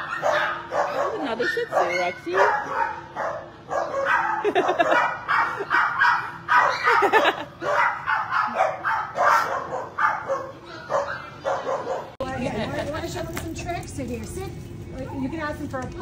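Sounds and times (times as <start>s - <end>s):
small dogs barking: 0.0s - 12.2s.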